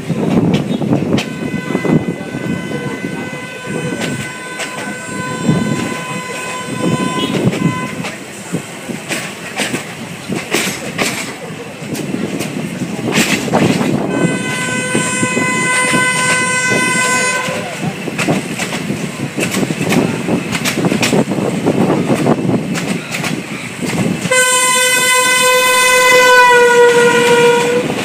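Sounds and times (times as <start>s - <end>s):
train wheels clacking on track: 0.0s - 28.0s
train horn blast: 1.2s - 8.2s, 14.0s - 17.8s, 24.2s - 28.0s.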